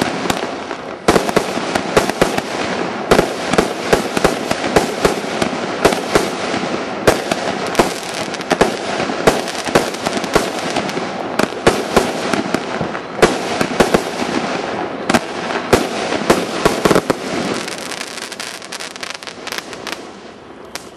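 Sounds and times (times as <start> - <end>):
fireworks shots banging: 0.0 - 20.9.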